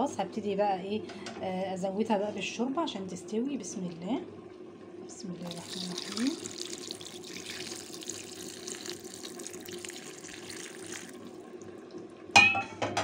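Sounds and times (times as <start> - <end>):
broth pouring into a pot: 5.4 - 12.2.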